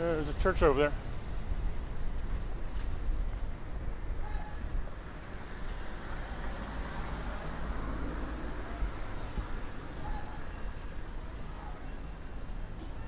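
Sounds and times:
cars passing: 0:00.0 - 0:13.0.

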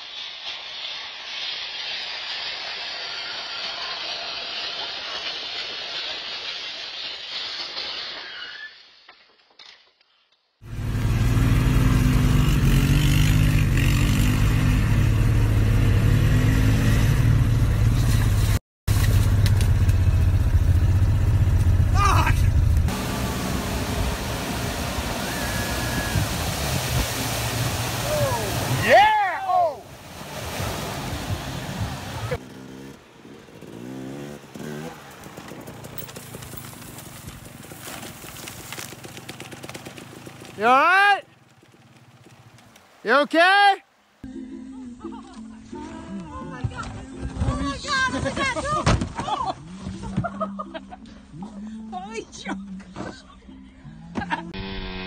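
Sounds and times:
quad bike engine running: 0:10.6 - 0:26.0, 0:31.7 - 0:42.8
dirt bike engine putting: 0:31.8 - 0:43.0
bike crashing into brush: 0:34.5 - 0:40.8.

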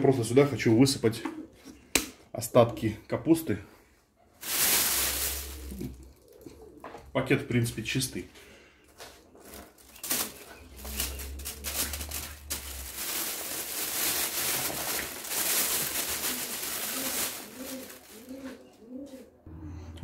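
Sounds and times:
plastic bag rustling: 0:04.3 - 0:06.4, 0:09.3 - 0:19.2.

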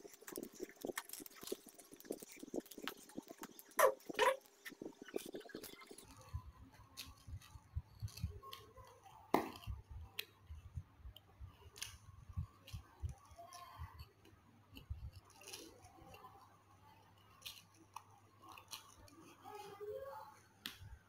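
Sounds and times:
chewing and slurping noodles: 0:00.0 - 0:09.1.

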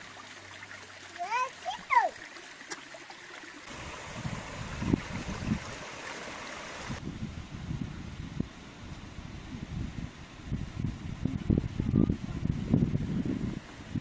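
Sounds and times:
stream running over rocks: 0:00.0 - 0:07.0.

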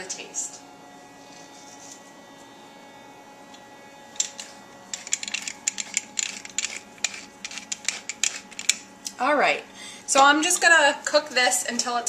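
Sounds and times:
low steady hum: 0:00.0 - 0:12.0
pepper mill grinding: 0:04.1 - 0:08.9.

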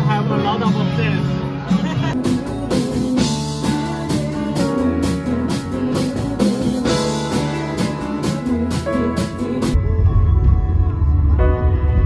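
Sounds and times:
guitar: 0:00.0 - 0:12.0
drum kit steady beat: 0:01.7 - 0:09.8.

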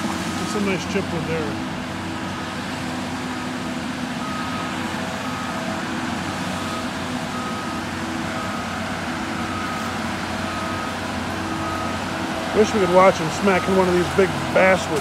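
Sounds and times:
diesel engine running: 0:00.0 - 0:15.0
backup alarm beeping: 0:06.6 - 0:12.0.

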